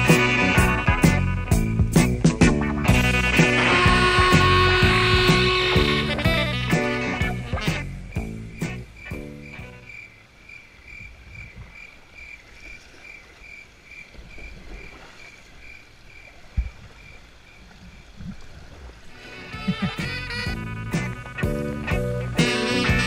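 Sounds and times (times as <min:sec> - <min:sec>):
background music: 0:00.0 - 0:09.9, 0:19.2 - 0:23.0
frog calling: 0:03.0 - 0:18.4, 0:19.1 - 0:21.9
creek water rushing: 0:11.9 - 0:21.5.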